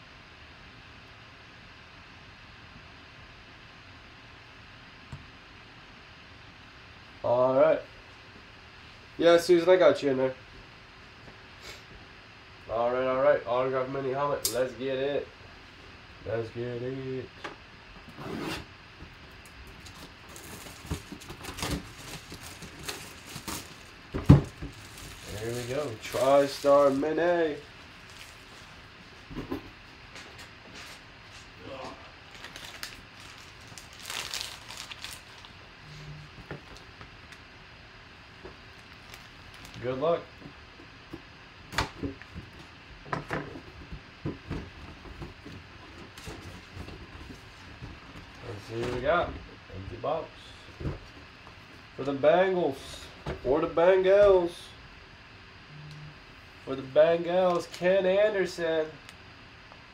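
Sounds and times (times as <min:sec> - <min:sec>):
knocks and rustles: 0:19.0 - 0:27.0, 0:40.4 - 0:49.5
plastic wrap crinkling: 0:19.6 - 0:29.2, 0:32.2 - 0:35.6, 0:38.7 - 0:39.9
knife slitting shrink wrap: 0:32.3 - 0:35.5.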